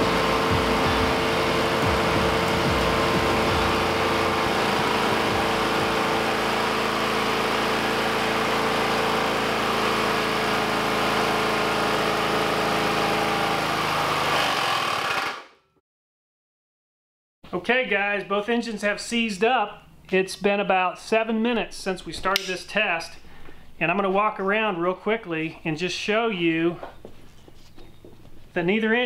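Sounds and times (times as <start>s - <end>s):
lawn mower engine running: 0.0s - 15.4s.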